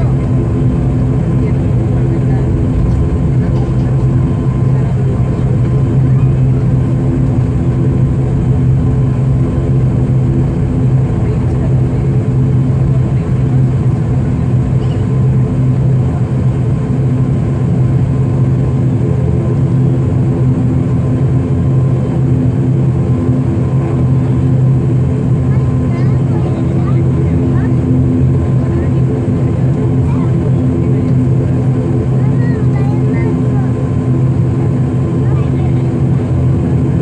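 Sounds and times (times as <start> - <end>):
turboprop cabin drone: 0.0 - 37.0.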